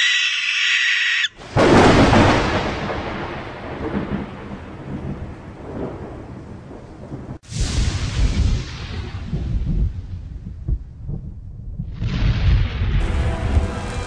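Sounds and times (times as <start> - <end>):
harsh noisy screech: 0.0 - 1.3
thunderclap rumbling: 1.4 - 14.0.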